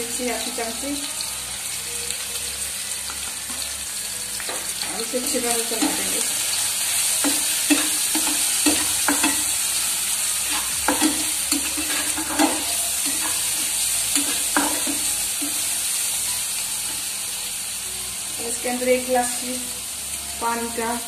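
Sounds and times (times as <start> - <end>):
food sizzling in frying pan: 0.0 - 21.0
spatula scraping pan: 10.4 - 15.7.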